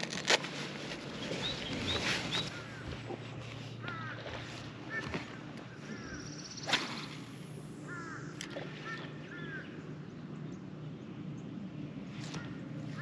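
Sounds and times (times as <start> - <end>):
steady low hum: 0.0 - 13.0
crows cawing: 3.8 - 6.3, 7.8 - 9.8, 12.4 - 13.0
fishing rod swish: 6.6 - 7.4.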